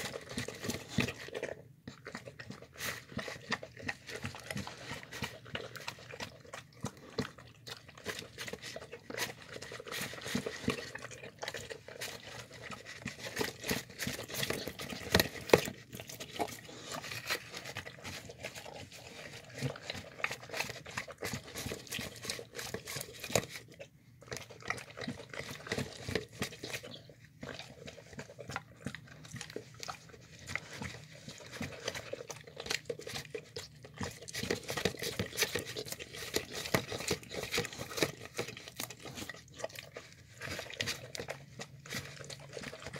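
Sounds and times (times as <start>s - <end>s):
dog lapping and eating: 0.0s - 42.9s
teeth clicking on plastic: 19.4s - 42.9s.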